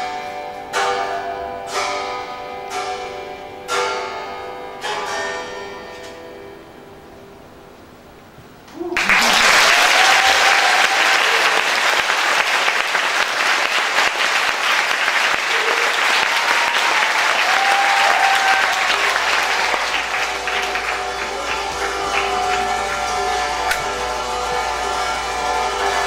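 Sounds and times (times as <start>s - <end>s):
audience cheering: 8.8s - 26.0s
audience applauding: 9.0s - 26.0s
string instruments sustained notes: 16.9s - 26.0s.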